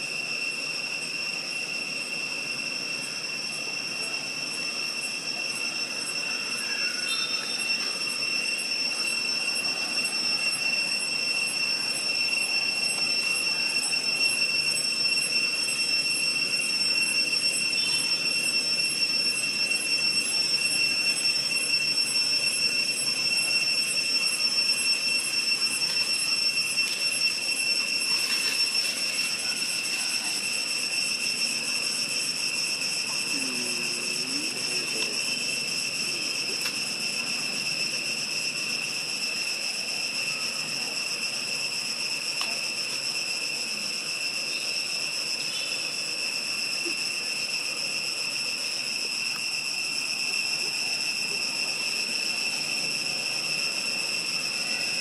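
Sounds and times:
cicadas droning: 0.0s - 55.0s.

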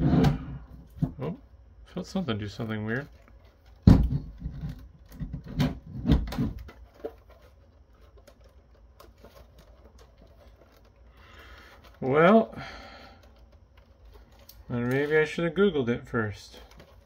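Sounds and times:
plastic case knocks and clicks: 3.7s - 7.2s.

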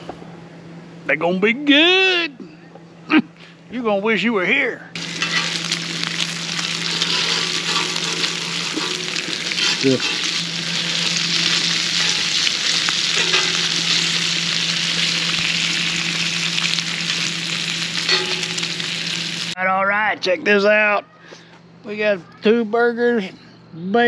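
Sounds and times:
burgers sizzling on grill: 5.0s - 19.6s.

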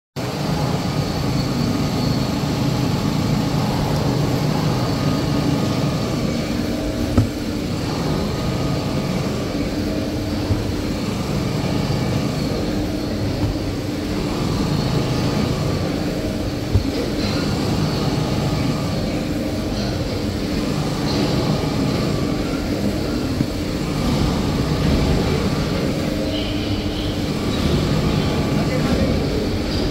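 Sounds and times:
sharp knocks: 7.1s - 7.6s, 10.4s - 11.0s, 13.3s - 13.8s, 16.6s - 17.3s.

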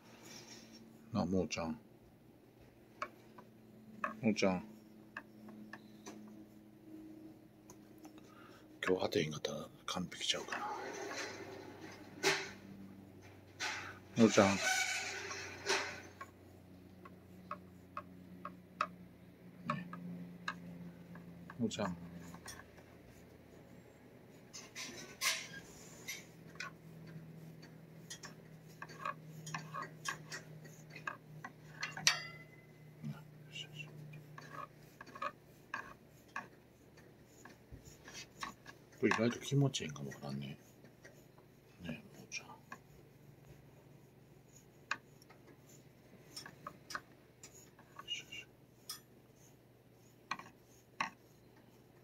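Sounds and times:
low steady hum: 0.0s - 52.0s
stick tapping cage bars: 24.5s - 39.3s.

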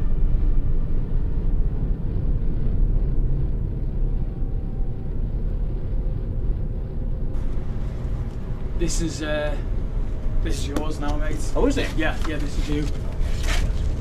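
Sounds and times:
low rumbling noise: 0.0s - 14.0s.

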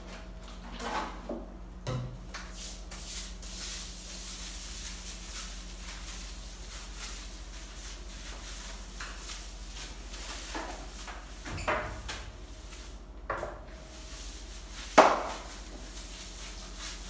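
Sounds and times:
broom scrubbing wet tiles: 2.4s - 11.4s, 12.4s - 13.0s, 13.9s - 17.0s.

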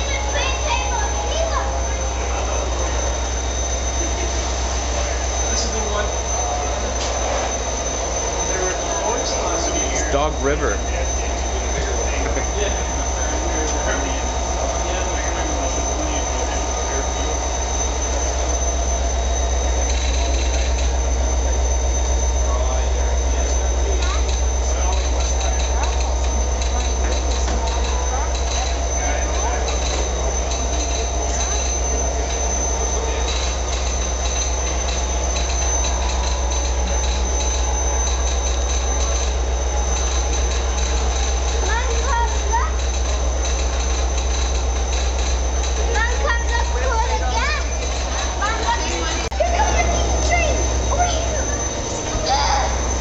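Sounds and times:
faint voices: 0.0s - 53.0s
low mechanical drone: 0.0s - 53.0s
thin high whine: 0.0s - 53.0s
model train motor whirring: 23.3s - 53.0s.

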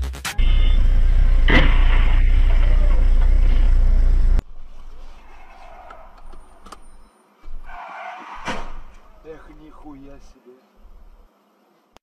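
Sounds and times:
loud bass-heavy music: 0.0s - 4.4s
car road noise: 0.4s - 11.6s.

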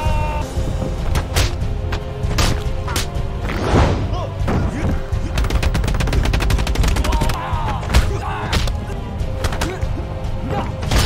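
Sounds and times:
film music: 0.0s - 11.0s.

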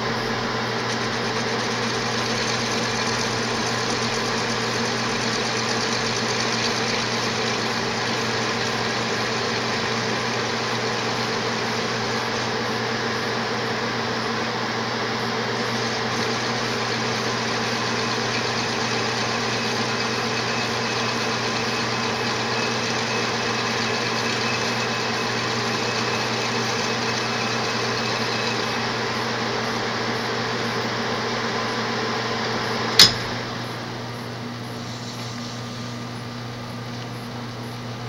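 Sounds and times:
metal lathe running: 0.0s - 38.0s
sharp click: 33.0s - 33.4s.

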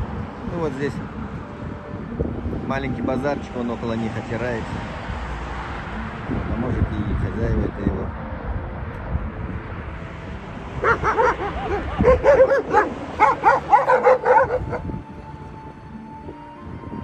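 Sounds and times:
dogs yelping barks: 10.8s - 14.8s.

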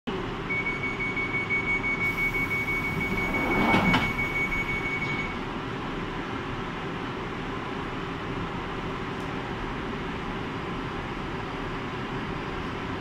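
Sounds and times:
standing train hum: 1.8s - 13.0s
high door-warning tone: 2.0s - 5.4s
sliding doors closing with thud: 2.1s - 5.4s.

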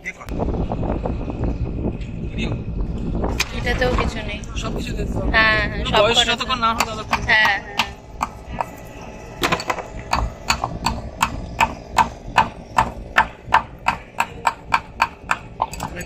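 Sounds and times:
hard objects knocking rhythmically: 6.2s - 16.0s.

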